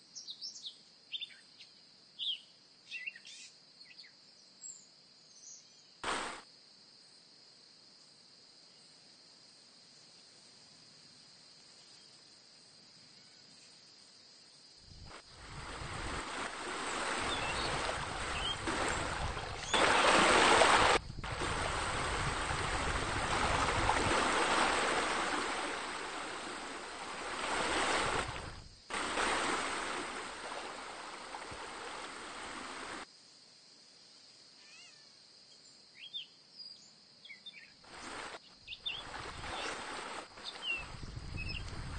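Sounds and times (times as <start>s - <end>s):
rushing splashing water: 6.0s - 6.4s, 15.1s - 33.0s, 37.9s - 41.0s.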